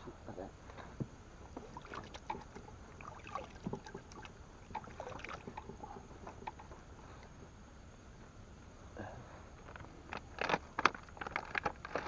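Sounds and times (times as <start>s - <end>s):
gear handled in inflatable boat: 1.0s - 6.8s, 9.6s - 12.0s.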